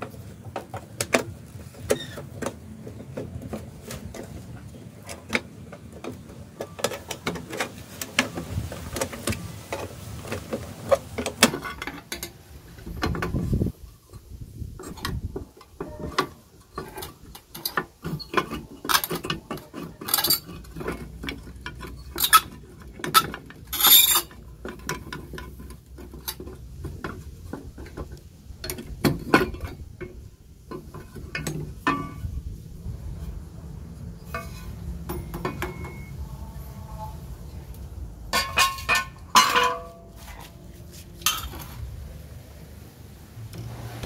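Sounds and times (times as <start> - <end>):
metal clicks and knocks: 14.2 - 32.4, 34.3 - 36.1, 38.3 - 40.1.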